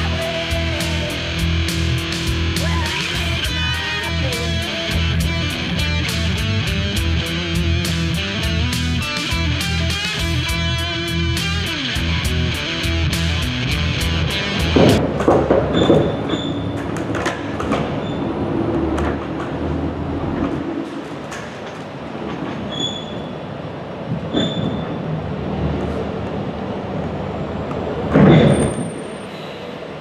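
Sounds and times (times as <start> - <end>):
loud rumble: 0.0 - 15.3
short high squeals: 15.8 - 16.8, 22.7 - 23.5, 24.3 - 25.1, 28.3 - 29.9.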